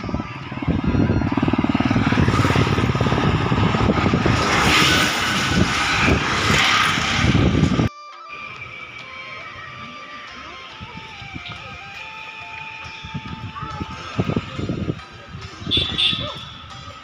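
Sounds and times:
bus engine running: 0.0 - 7.9
tyres rushing: 0.0 - 16.8
auto-rickshaw passing: 0.0 - 17.0.

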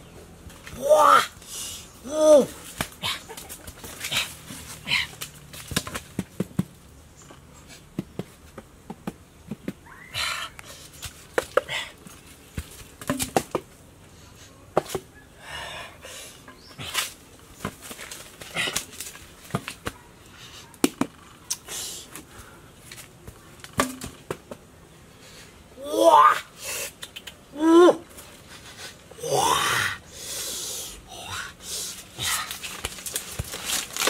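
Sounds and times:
footsteps shuffling on dry leaves: 31.8 - 34.0.

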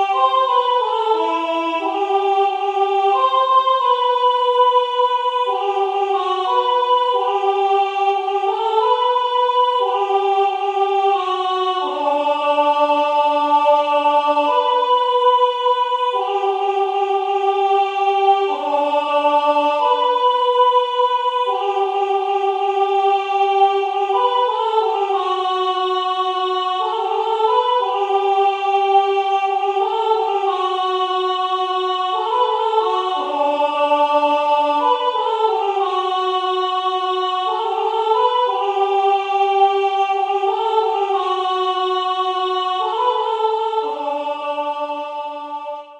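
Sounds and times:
synthesized choir parts: 0.0 - 45.9.

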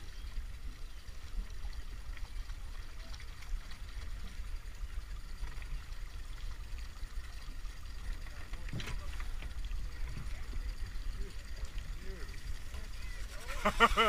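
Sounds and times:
water lapping against boats: 0.0 - 14.0.

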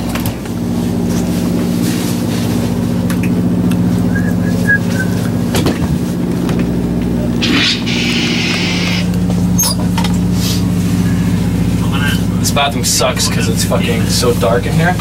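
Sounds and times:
low motor hum: 0.0 - 15.0.

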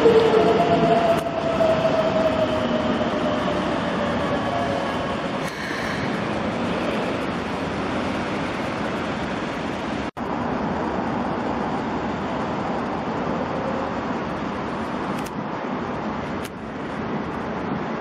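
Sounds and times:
electric trains running: 0.0 - 18.0
train approaching: 0.0 - 18.0.

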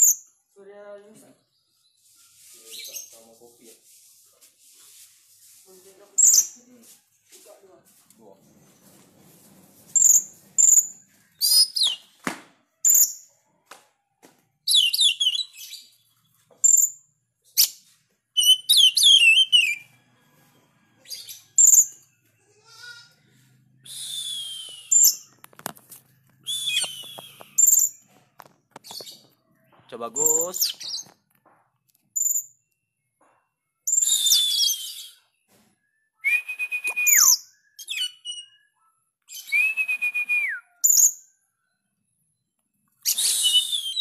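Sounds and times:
bird singing whistled phrases: 10.0 - 12.2, 14.7 - 16.0, 18.4 - 19.9, 23.8 - 25.3, 26.4 - 28.0, 33.8 - 41.2, 43.0 - 44.0.

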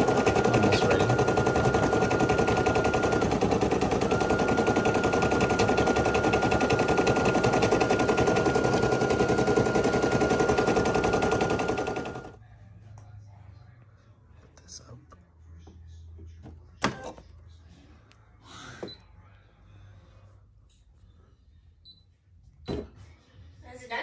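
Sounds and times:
embroidery machine needle clatter: 0.0 - 12.3.

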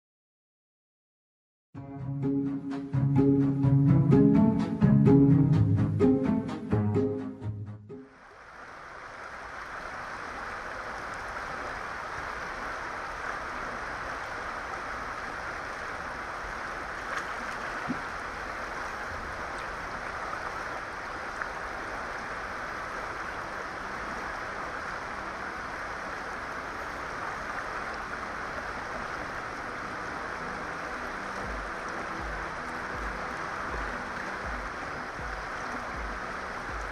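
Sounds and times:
fast-flowing river rushing: 8.1 - 36.9.

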